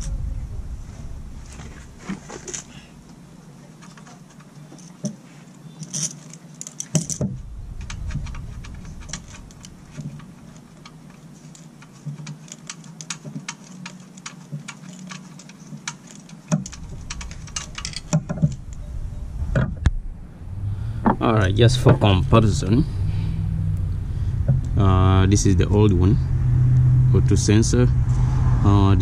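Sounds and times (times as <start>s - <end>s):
light metallic clicking and rattling: 0.0s - 19.0s.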